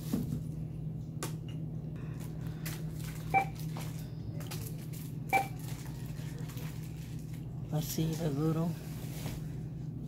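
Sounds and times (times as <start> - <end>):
steady low hum: 0.0 - 10.0
barcode scanner beeps: 3.3 - 3.6, 5.3 - 5.6.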